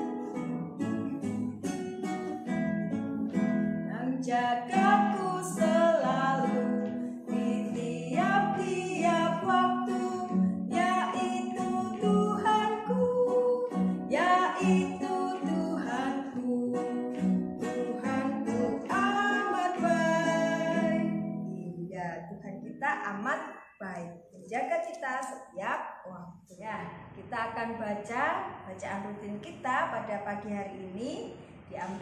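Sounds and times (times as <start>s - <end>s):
acoustic guitar: 0.0s - 32.0s
woman singing: 0.2s - 1.8s, 3.9s - 21.9s.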